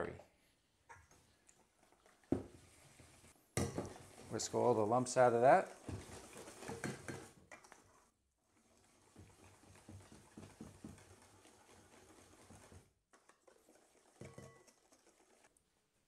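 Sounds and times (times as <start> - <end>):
whisk beating batter in metal bowl: 3.6 - 15.5.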